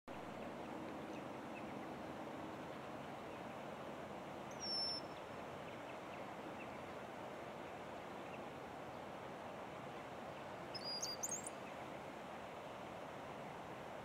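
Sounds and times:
low background hiss: 0.1 - 14.0
high thin bird whistle: 10.8 - 11.5.

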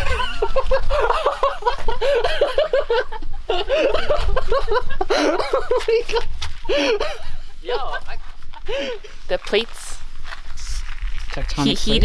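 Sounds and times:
person laughing hard: 0.0 - 7.9.

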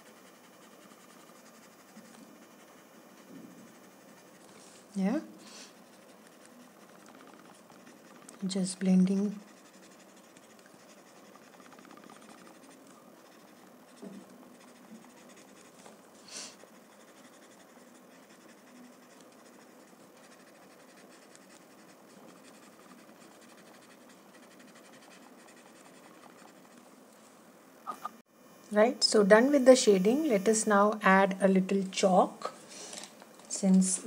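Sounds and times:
blending stump rubbing paper: 0.0 - 26.9.

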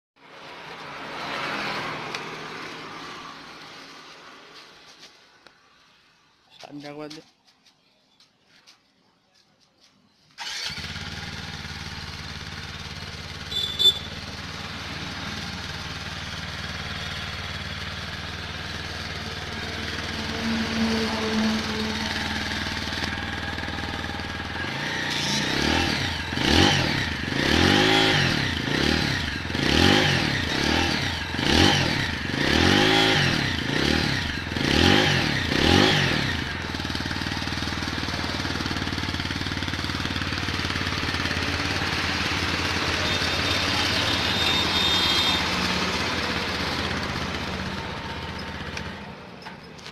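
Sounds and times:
motorcycle engine idling: 10.4 - 27.6, 33.2 - 49.9
engine revving: 10.4 - 49.0.

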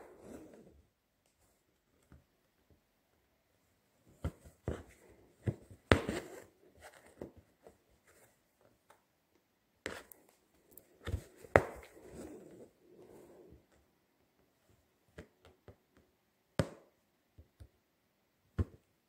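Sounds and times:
thread rasping through cloth: 4.1 - 8.2.

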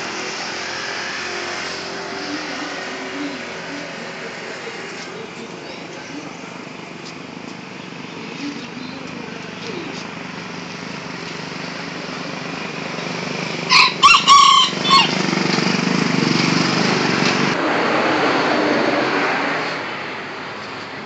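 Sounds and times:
rooster crowing: 13.7 - 15.2.

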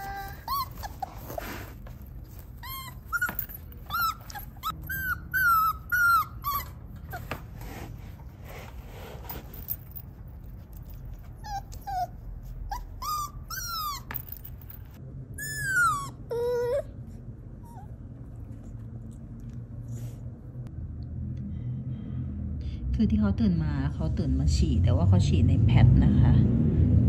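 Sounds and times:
puppy whimpering and crying: 0.0 - 7.6, 10.8 - 14.5, 15.4 - 18.1
low steady hum: 0.0 - 27.0.

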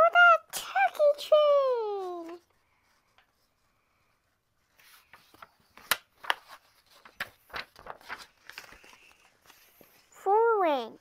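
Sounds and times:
paper pages turning and rustling: 0.9 - 3.6, 4.6 - 10.4.

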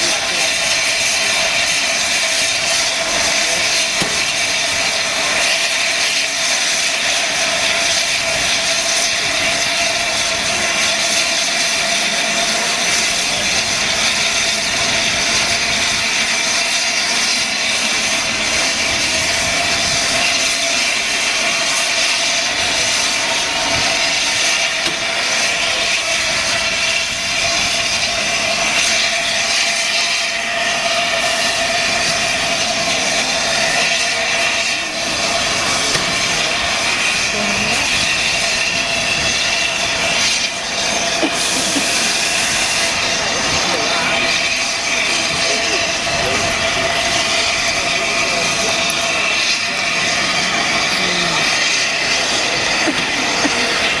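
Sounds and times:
steam locomotive venting steam: 0.0 - 54.0.

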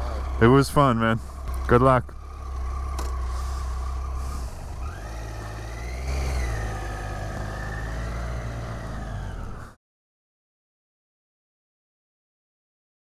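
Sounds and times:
motorcycle engine revving: 0.0 - 9.8.

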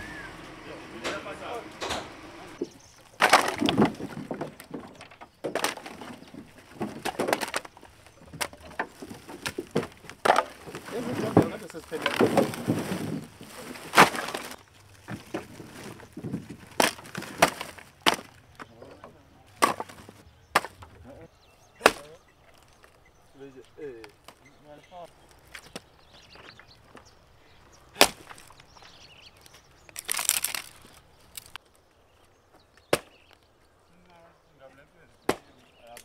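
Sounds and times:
firewood knocking and clattering: 0.9 - 21.0.

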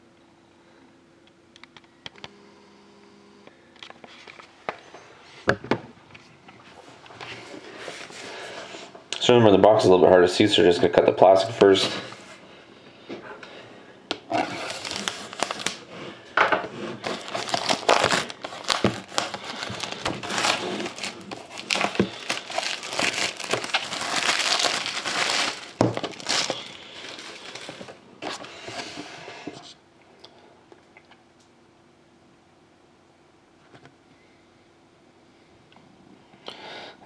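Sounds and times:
plastic wrap crinkling: 14.3 - 16.0, 17.0 - 28.0.

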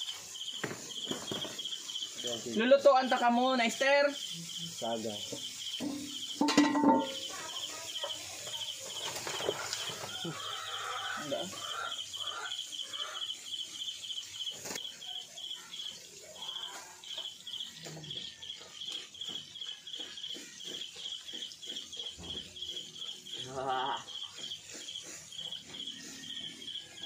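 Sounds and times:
food sizzling in hot oil: 0.0 - 20.6.

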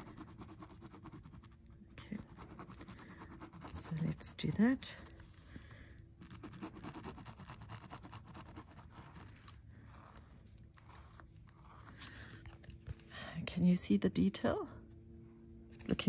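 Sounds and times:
pen scratching on foil tape: 6.2 - 12.2.

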